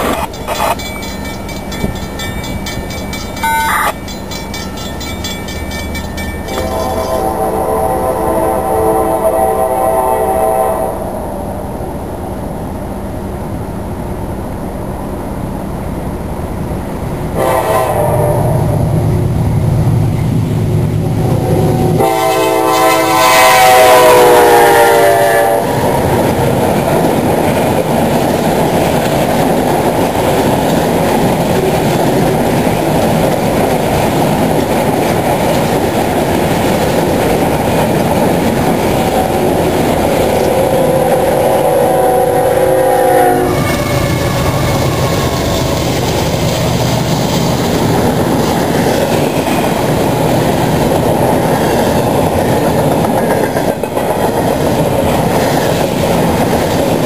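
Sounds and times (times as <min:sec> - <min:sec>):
freight train cars rumbling past: 0:00.0 - 0:57.0
train horn blast: 0:06.5 - 0:11.4, 0:17.4 - 0:18.9, 0:21.2 - 0:25.8, 0:40.2 - 0:45.6.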